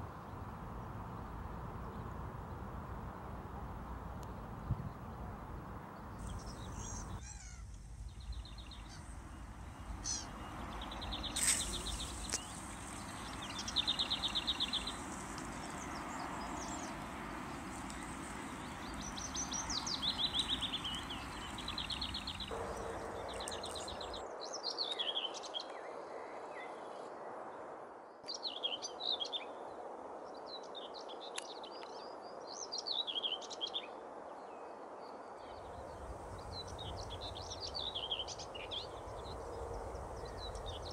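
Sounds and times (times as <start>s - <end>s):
wild birds calling and singing: 6.1s - 24.2s, 35.5s - 40.9s.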